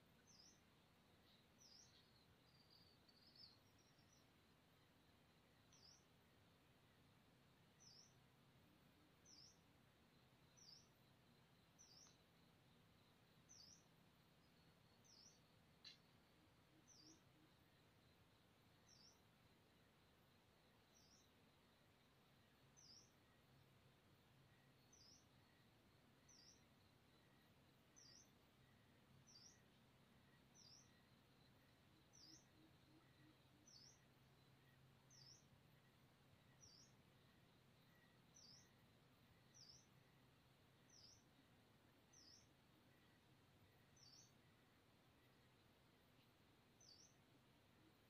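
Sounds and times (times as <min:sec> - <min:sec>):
faint high bird chirp: 0:00.0 - 0:04.4, 0:05.5 - 0:06.2, 0:07.7 - 0:08.3, 0:10.3 - 0:11.0, 0:11.6 - 0:12.5, 0:13.3 - 0:17.4, 0:18.8 - 0:19.3, 0:20.8 - 0:21.4, 0:22.6 - 0:23.6, 0:26.2 - 0:27.3, 0:27.9 - 0:37.2, 0:37.8 - 0:38.8, 0:39.4 - 0:40.0, 0:40.8 - 0:41.4, 0:42.0 - 0:44.6, 0:45.2 - 0:47.3.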